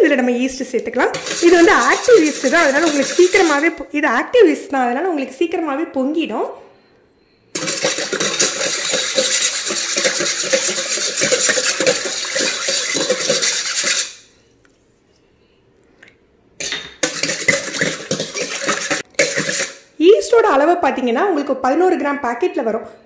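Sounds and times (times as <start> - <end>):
whisk scraping a metal bowl: 1.1 - 3.8, 7.6 - 14.4, 16.6 - 19.9.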